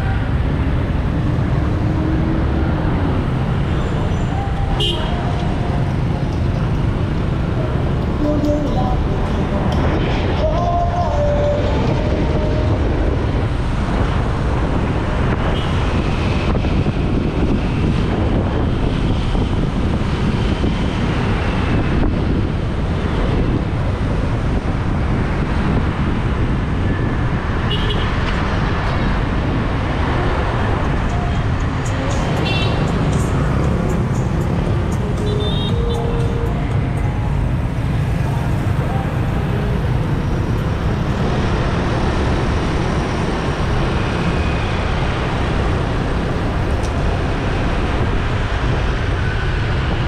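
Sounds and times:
busy street traffic noise: 0:00.0 - 0:50.0
horn beeps: 0:34.7 - 0:37.2.

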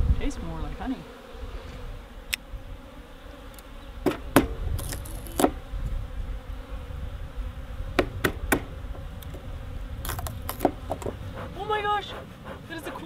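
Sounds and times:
honeybees buzzing: 0:00.0 - 0:13.0
metal tool clicking on hive boxes: 0:03.6 - 0:05.6, 0:10.1 - 0:11.2.

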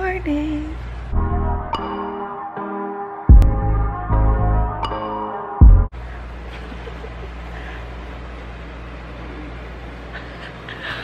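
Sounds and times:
deep bass notes: 0:01.0 - 0:02.1, 0:03.3 - 0:05.0, 0:05.6 - 0:05.9
sustained chords: 0:01.0 - 0:05.9.

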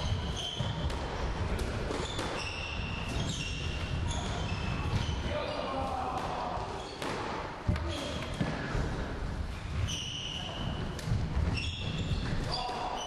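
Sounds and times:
shoes squeaking on floor: 0:00.0 - 0:05.8, 0:06.7 - 0:07.2, 0:09.5 - 0:13.0.

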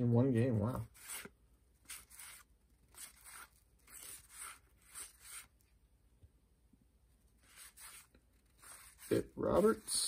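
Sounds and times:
cards swishing against cards: 0:00.8 - 0:05.6, 0:07.4 - 0:10.0.

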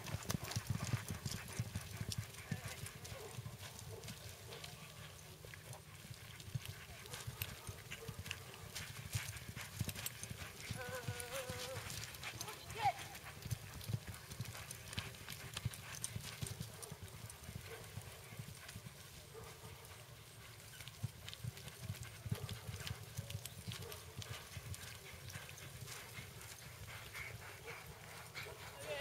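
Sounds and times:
horse hoofbeats on dirt: 0:00.0 - 0:29.0.

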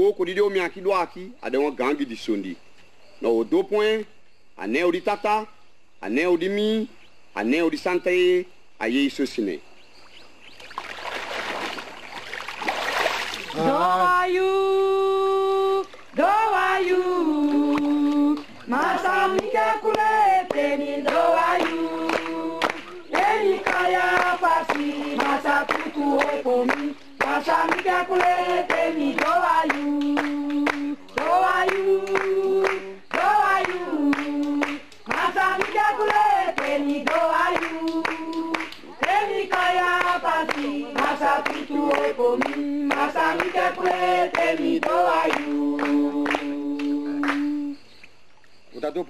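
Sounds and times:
group singing unaccompanied: 0:13.4 - 0:47.8.

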